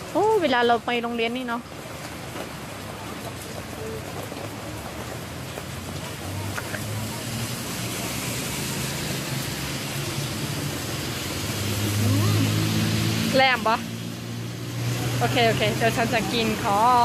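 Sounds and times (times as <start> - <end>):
heavy rain on street and awning: 0.0 - 17.0
passing traffic engine hum: 5.1 - 17.0.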